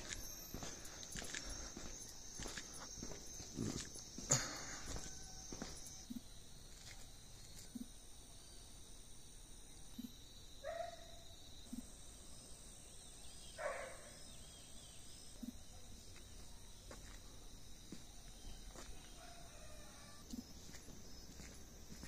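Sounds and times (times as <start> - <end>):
high-pitched insect trilling: 0.0 - 8.7, 17.9 - 22.0.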